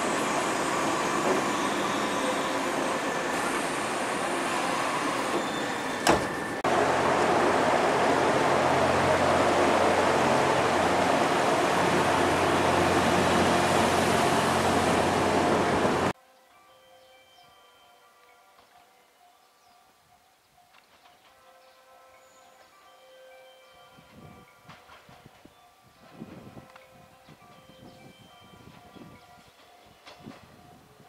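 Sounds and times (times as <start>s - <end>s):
train rumble: 0.0s - 16.1s
train running at speed: 0.0s - 16.1s.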